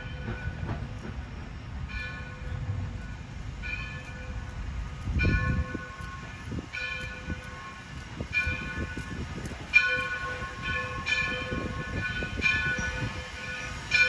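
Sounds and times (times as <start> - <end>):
locomotive bell ringing: 0.0 - 14.0
train rumble: 0.0 - 14.0.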